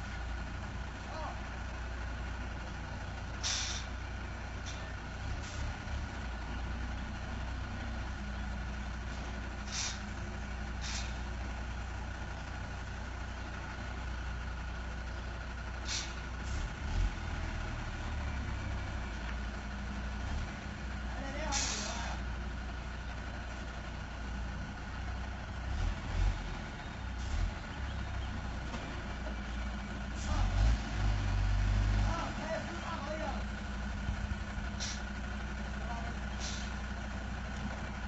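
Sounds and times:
diesel truck engine running: 0:00.0 - 0:38.0
air brake hisses: 0:03.4 - 0:03.9, 0:09.6 - 0:10.1, 0:10.8 - 0:11.3, 0:15.8 - 0:16.2, 0:21.5 - 0:22.1, 0:34.8 - 0:35.1, 0:36.4 - 0:36.8.

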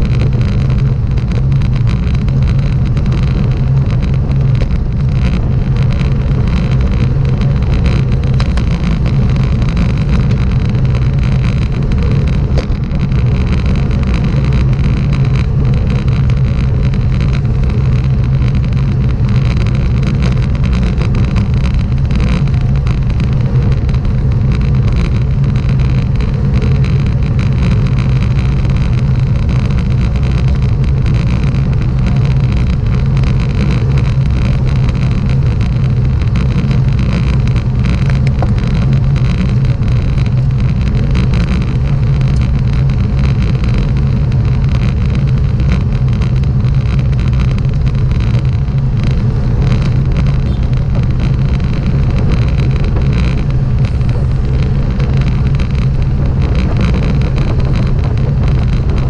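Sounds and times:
road and wind noise: 0:00.0 - 0:59.0
vehicle engine running steadily: 0:00.0 - 0:59.0.

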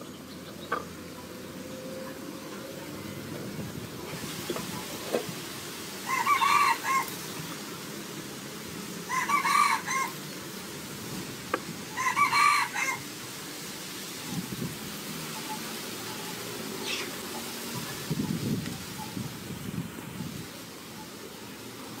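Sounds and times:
rooster crowing: 0:06.0 - 0:07.2, 0:09.1 - 0:10.2, 0:11.9 - 0:13.1.

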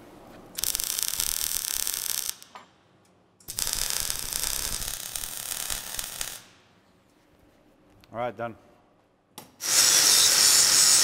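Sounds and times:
welding arc crackling: 0:00.6 - 0:02.5, 0:03.4 - 0:06.6, 0:09.6 - 0:11.0.

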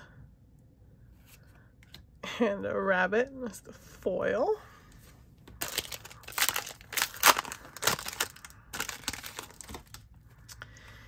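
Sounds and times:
foil wrapper crinkling and tearing: 0:05.6 - 0:10.5.

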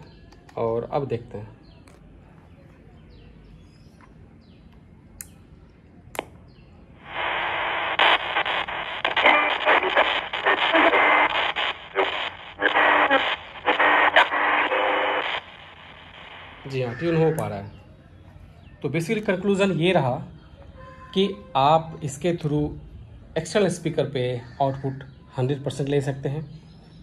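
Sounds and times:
faint radio whistles: 0:07.0 - 0:16.7
radio clicks: 0:07.0 - 0:16.7
radio static sweeping: 0:07.0 - 0:17.3
snatches of station audio: 0:07.0 - 0:17.5.

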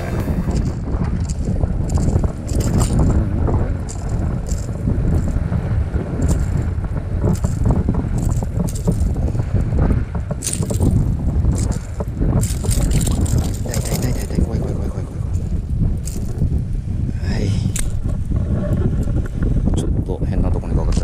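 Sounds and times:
wind buffeting microphone: 0:00.0 - 0:21.0.

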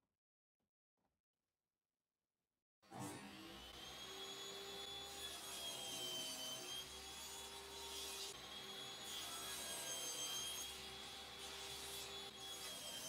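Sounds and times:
table saw whining: 0:02.9 - 0:13.0.

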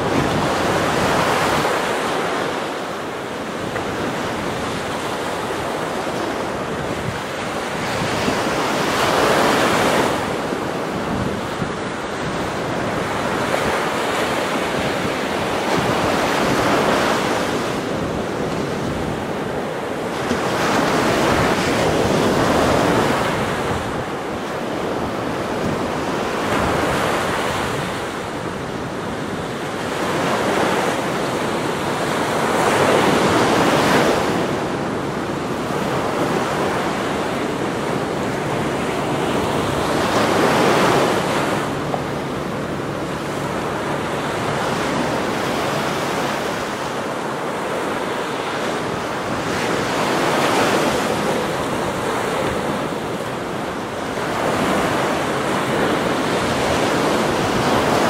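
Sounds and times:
ocean waves breaking on beach: 0:00.0 - 0:58.0.

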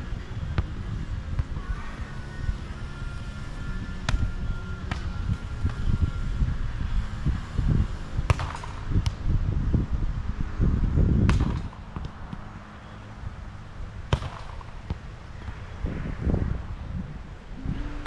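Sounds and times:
low rumble: 0:15.4 - 0:18.0.

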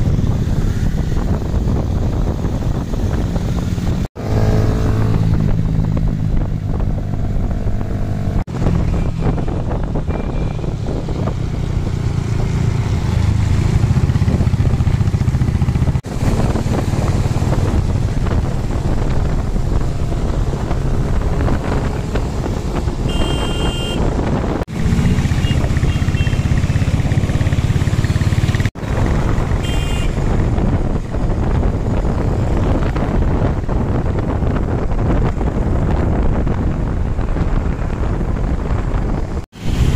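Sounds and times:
vehicle engine and road noise: 0:00.0 - 0:39.9
short horn toot: 0:23.1 - 0:24.1, 0:29.6 - 0:30.2.

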